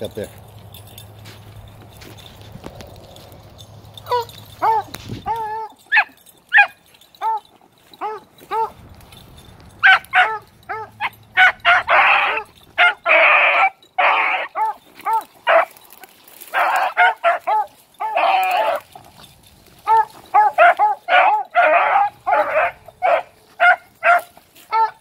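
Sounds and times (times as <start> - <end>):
puppies barking and baying: 0.5 - 25.0.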